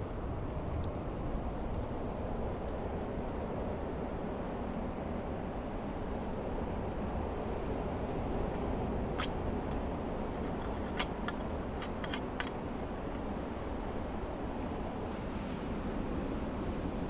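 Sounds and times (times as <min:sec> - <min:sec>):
wind: 0:00.0 - 0:17.0
surf: 0:14.8 - 0:17.0.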